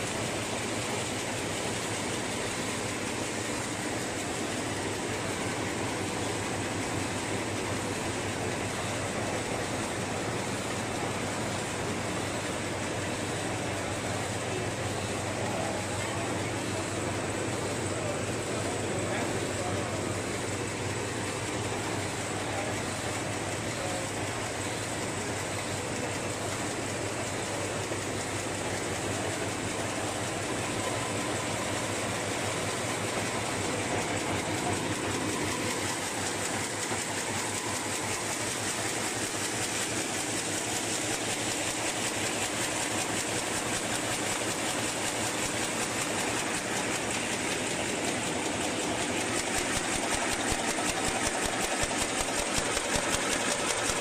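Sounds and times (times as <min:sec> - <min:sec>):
paper bag machine clattering: 0:45.6 - 0:54.0.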